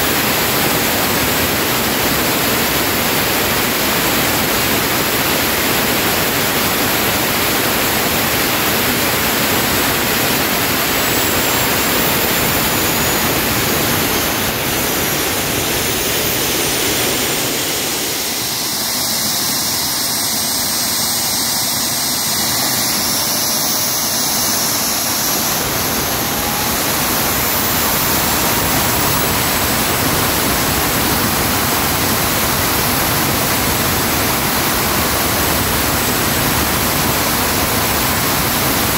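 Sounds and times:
high engine whine: 0.0 - 38.9
jet engine rushing roar: 0.0 - 38.9.

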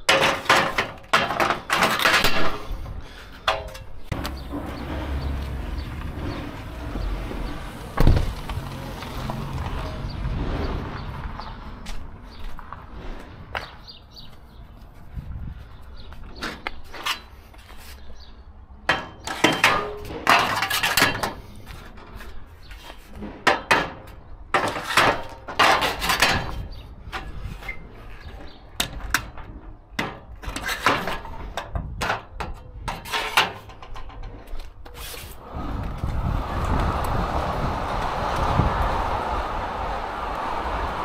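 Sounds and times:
metal buckles clanking and rattling: 3.4 - 8.8, 24.6 - 35.0
steady rushing rumble: 4.0 - 13.7, 35.4 - 41.0.

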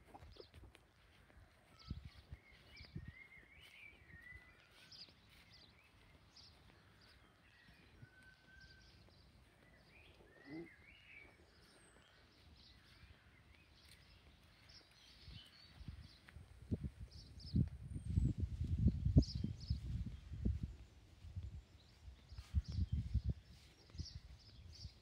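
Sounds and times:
birds chirping: 0.0 - 16.4.

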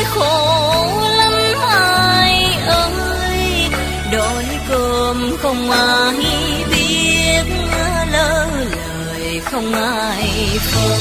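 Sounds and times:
plucked lute melody: 0.2 - 8.9.

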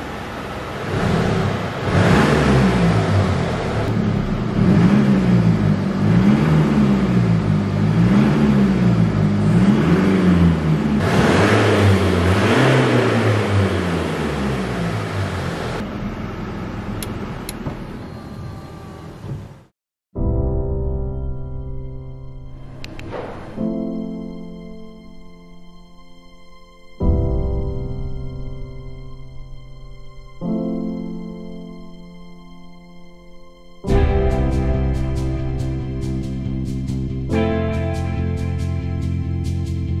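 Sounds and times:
diesel engine revving: 0.0 - 19.7.

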